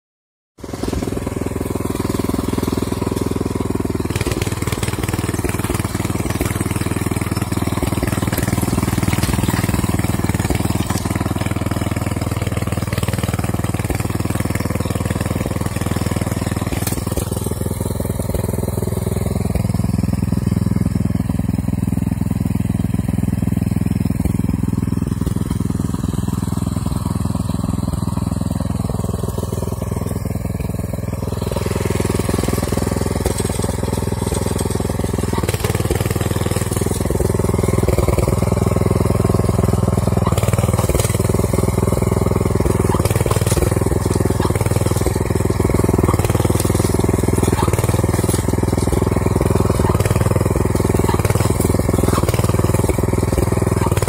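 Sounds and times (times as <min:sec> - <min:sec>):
tractor engine running: 0:00.6 - 0:54.0.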